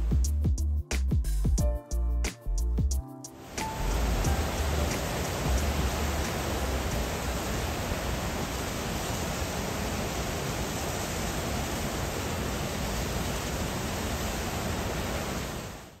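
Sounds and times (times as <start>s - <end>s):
churning river: 3.4s - 15.8s
water rushing from spillway: 3.4s - 16.0s.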